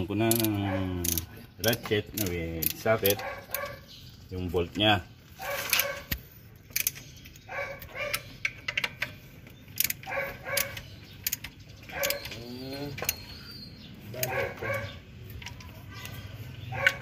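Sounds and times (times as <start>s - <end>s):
ratchet wrench clicking: 0.2s - 3.2s, 6.6s - 7.4s, 8.1s - 12.4s
dog barking: 0.6s - 1.0s, 3.1s - 3.9s, 5.4s - 6.1s, 7.5s - 8.2s, 10.0s - 10.8s, 11.9s - 12.3s, 14.1s - 15.0s, 16.7s - 17.0s.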